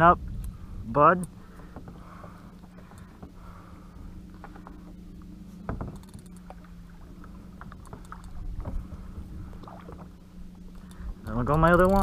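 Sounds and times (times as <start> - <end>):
steady low hum: 0.0 - 12.0
water sloshing against kayak hull: 0.6 - 12.0
fishing gear knocks and clicks: 5.6 - 6.5, 7.6 - 8.8, 10.7 - 12.0.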